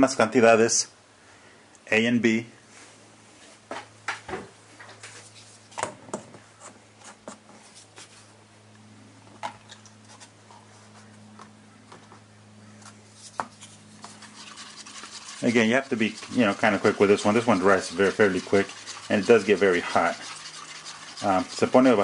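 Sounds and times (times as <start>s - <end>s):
steady low hum: 0.0s - 22.0s
paper cups clicking and tapping: 13.4s - 22.0s
resin pouring: 14.0s - 22.0s.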